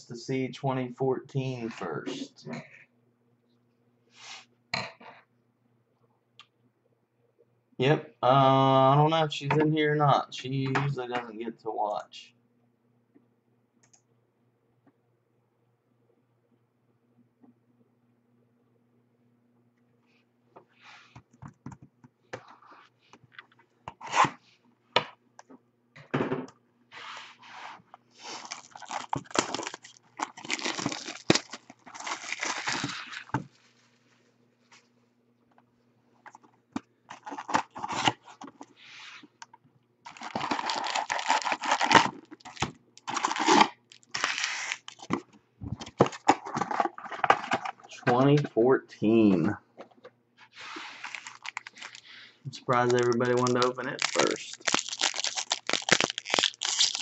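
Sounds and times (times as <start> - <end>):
shrink wrap and cardboard tearing: 28.2 - 33.3, 40.1 - 45.2, 50.6 - 52.1, 52.7 - 57.0
foil card packs rustling: 28.2 - 33.5, 37.1 - 38.7, 40.1 - 45.2, 45.8 - 48.0, 50.6 - 57.0.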